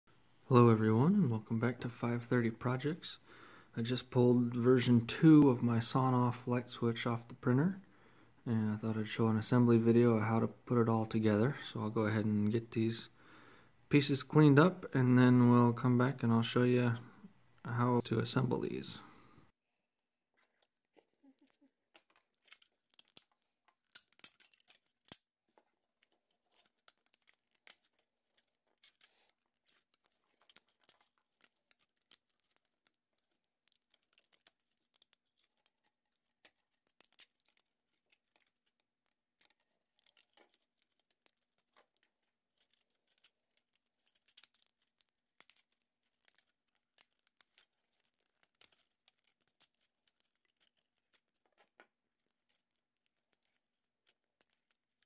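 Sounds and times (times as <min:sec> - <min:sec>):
plastic snapping and crackling: 0:20.5 - 0:55.0.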